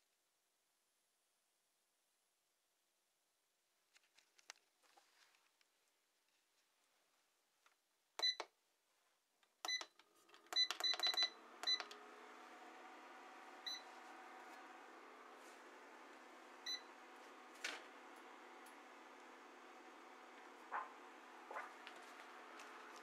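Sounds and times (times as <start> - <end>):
cooker humming and hissing: 11.4 - 23.0.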